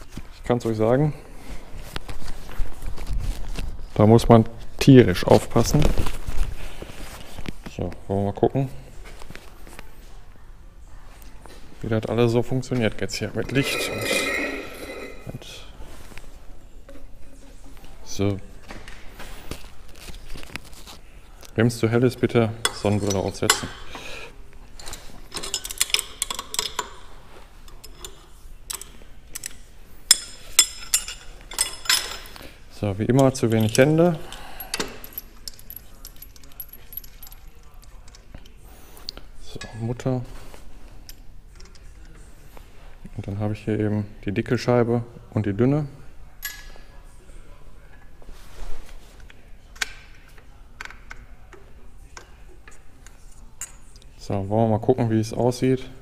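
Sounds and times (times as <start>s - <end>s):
metal tools clinking: 13.3s - 15.7s, 22.6s - 24.1s, 24.8s - 32.4s, 33.1s - 38.2s
ringing metal clink: 13.5s - 15.4s.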